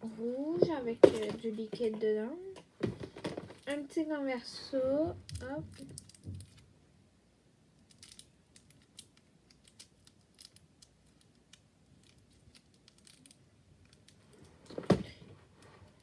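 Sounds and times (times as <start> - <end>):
light clicks of toys handled: 7.8 - 14.8.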